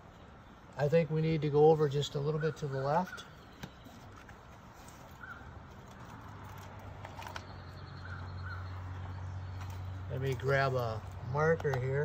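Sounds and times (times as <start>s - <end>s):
bird chirps: 7.3s - 10.4s.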